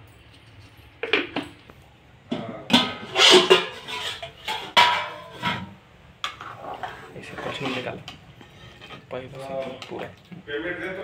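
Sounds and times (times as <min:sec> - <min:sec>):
metal utensils clanking on pot: 0:02.4 - 0:10.2.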